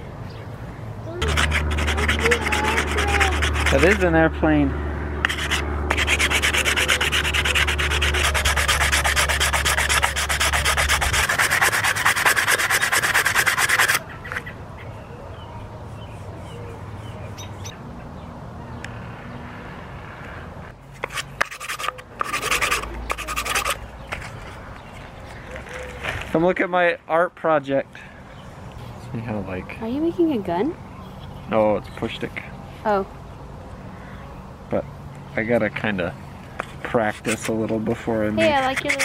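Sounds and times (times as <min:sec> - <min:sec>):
sandpaper rubbing on wood: 0:01.2 - 0:04.1, 0:05.2 - 0:14.0, 0:21.0 - 0:24.5, 0:37.0 - 0:39.0.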